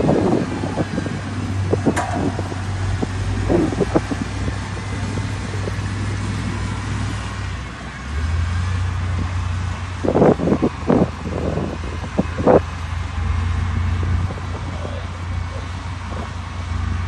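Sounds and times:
diesel engine running: 0.0 - 17.0
sharp knocks: 1.9 - 4.4.

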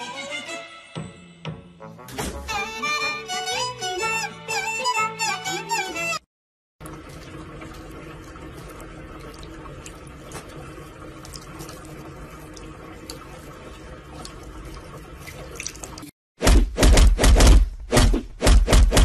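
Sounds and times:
cat lapping water: 6.8 - 16.1
tap water running into sink: 6.8 - 16.1
loud thud: 16.4 - 19.0.

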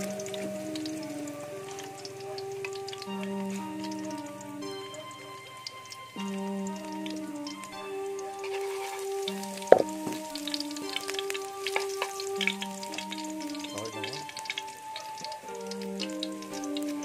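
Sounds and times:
background music with held notes: 0.0 - 17.0
garlic sizzling in hot oil: 0.0 - 17.0.

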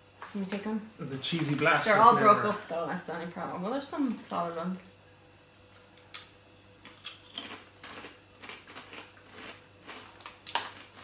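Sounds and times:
tortilla chips crunched and chewed: 5.9 - 11.0.

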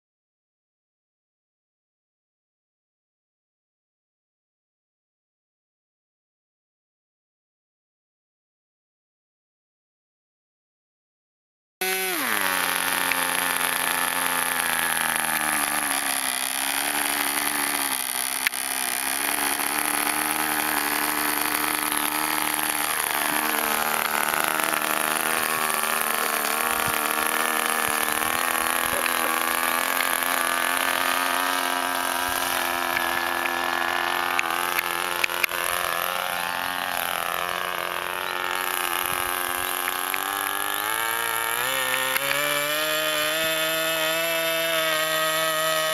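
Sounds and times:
model aircraft engine running: 11.8 - 45.9.

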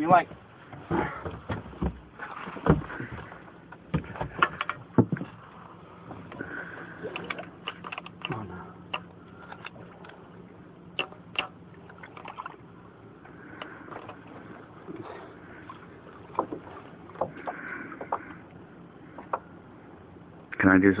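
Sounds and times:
steady low hum: 0.0 - 21.0
knocks and clicks of handling gear: 0.3 - 5.4.

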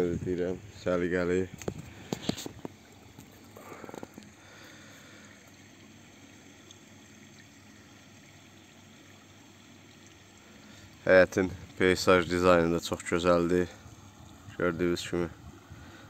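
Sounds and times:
soft handling sounds: 1.5 - 4.4.

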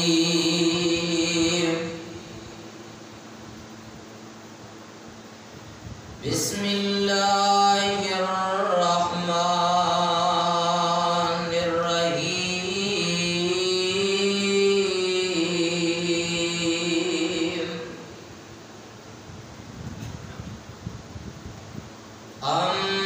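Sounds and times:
man chanting melodic recitation: 0.0 - 2.6, 6.2 - 18.2, 22.4 - 23.0.

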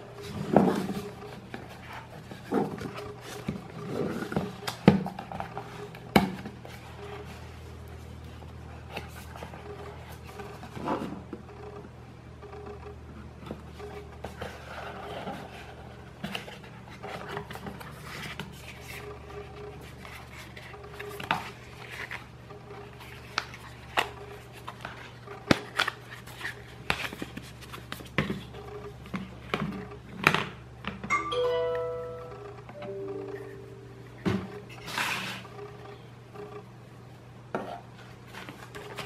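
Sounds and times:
cardboard and paper rustling: 0.0 - 11.3, 14.0 - 30.1, 37.7 - 39.0.

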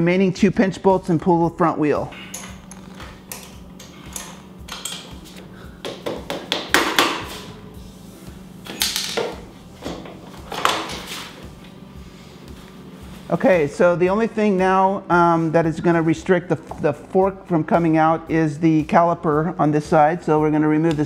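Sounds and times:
hand tools clicking and clattering: 2.2 - 7.0
low hum: 7.2 - 18.7.

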